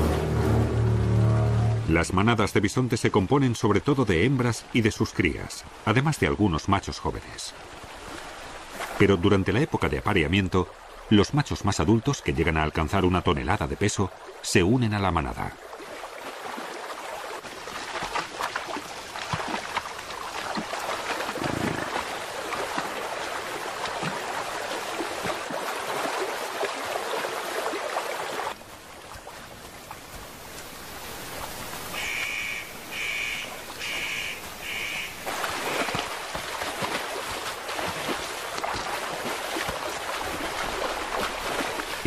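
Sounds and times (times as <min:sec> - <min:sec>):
hooves splashing in water: 0:00.0 - 0:11.0, 0:15.2 - 0:42.0
running water: 0:00.0 - 0:42.0
high-pitched animal call: 0:32.0 - 0:35.2.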